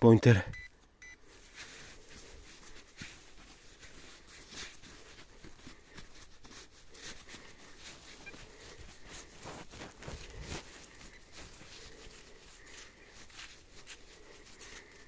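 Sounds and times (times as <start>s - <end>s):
scratching and crunching soil: 1.2s - 15.0s.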